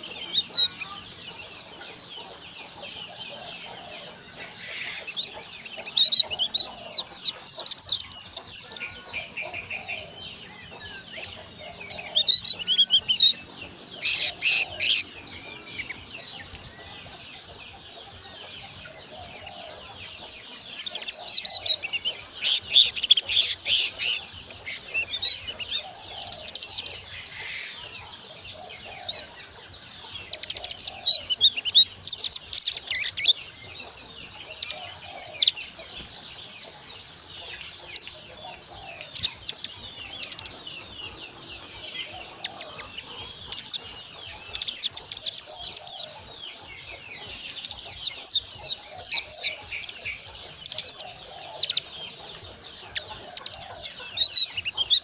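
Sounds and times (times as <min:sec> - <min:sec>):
young bird chirping and twittering: 0:00.0 - 0:55.0.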